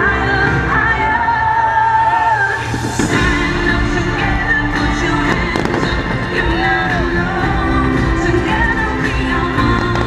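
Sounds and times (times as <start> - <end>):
pop music with singing: 0.0 - 10.0
fireworks bangs and crackles: 2.6 - 7.6, 9.6 - 10.0.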